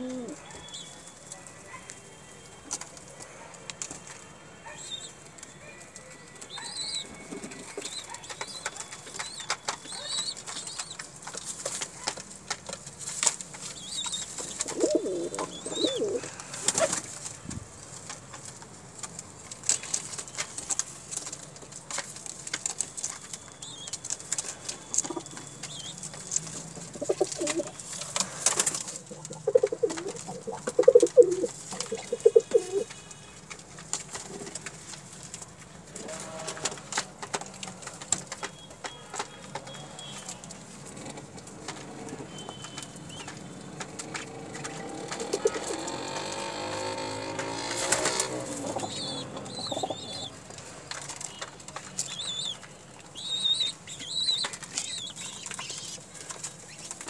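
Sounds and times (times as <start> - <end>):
pigeons cooing: 0.0 - 0.5, 14.0 - 17.1, 26.8 - 32.9, 43.2 - 50.4
pigeons pecking on plastic: 0.0 - 57.0.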